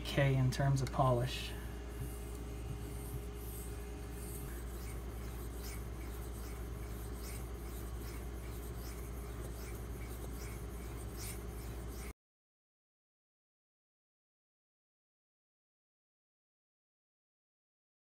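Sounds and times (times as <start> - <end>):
steady low hum: 0.0 - 12.1
blade scraping on whetstone: 2.0 - 12.1.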